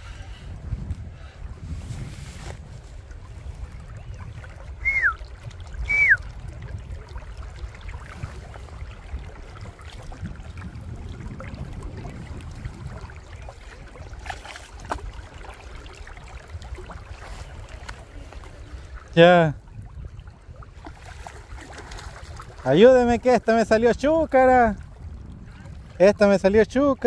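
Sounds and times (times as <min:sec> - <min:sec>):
river water running: 0:00.0 - 0:27.0
whistled notes falling in pitch: 0:04.8 - 0:05.2.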